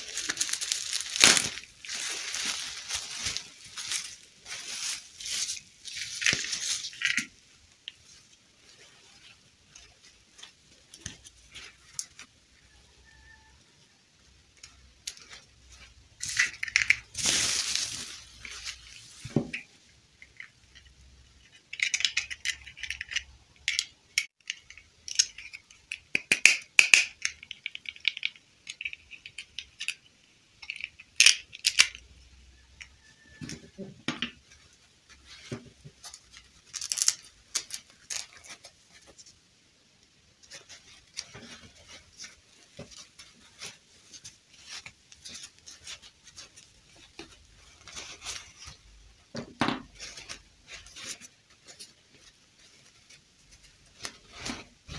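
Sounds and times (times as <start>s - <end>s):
fabric rustling: 0.0s - 12.3s, 17.1s - 19.5s, 40.4s - 49.2s, 49.8s - 54.9s.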